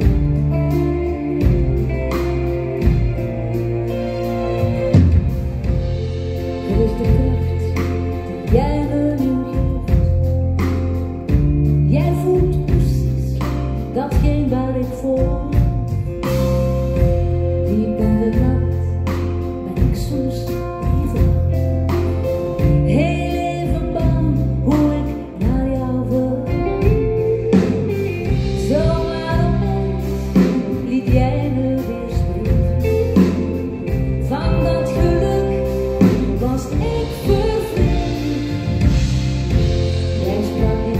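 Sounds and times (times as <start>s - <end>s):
band with bass guitar drums: 0.0s - 40.9s
woman singing pop ballad: 0.0s - 40.9s.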